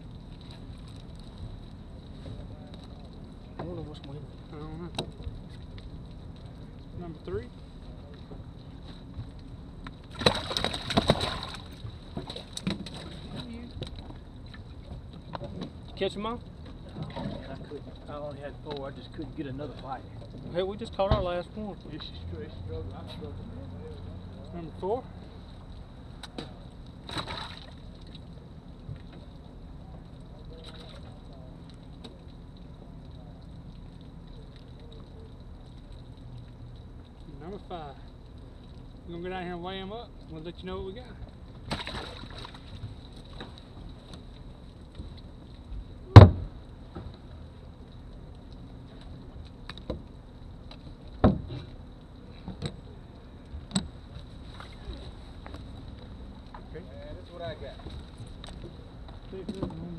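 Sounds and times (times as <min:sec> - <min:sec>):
steady low hum: 0:00.0 - 0:59.9
water splash: 0:10.1 - 0:13.4, 0:27.0 - 0:28.2, 0:41.7 - 0:42.8
knocks and thumps on boat: 0:10.1 - 0:14.2, 0:46.1 - 0:47.1, 0:51.2 - 0:51.7.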